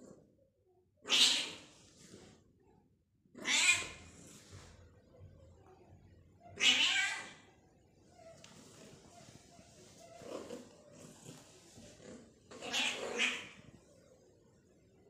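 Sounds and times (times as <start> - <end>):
cat meowing loudly: 3.4 - 4.0, 6.6 - 7.4.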